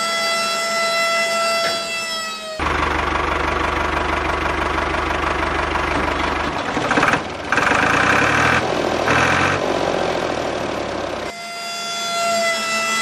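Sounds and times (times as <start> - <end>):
tractor diesel engine knocking idle: 2.6 - 11.3.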